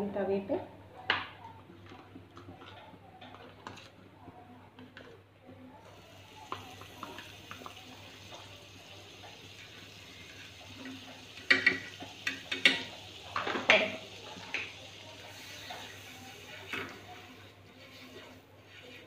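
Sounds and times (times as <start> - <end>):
butter sizzling in a pan: 5.8 - 19.0.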